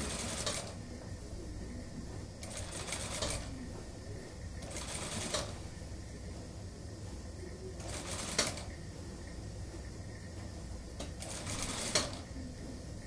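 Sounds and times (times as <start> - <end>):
sewing machine motor humming: 0.0 - 0.8, 2.4 - 3.6, 4.6 - 5.7, 7.8 - 8.8, 11.0 - 12.3
sewing machine stitching: 0.0 - 0.8, 2.4 - 3.5, 4.6 - 5.6, 7.8 - 8.7, 11.1 - 12.3.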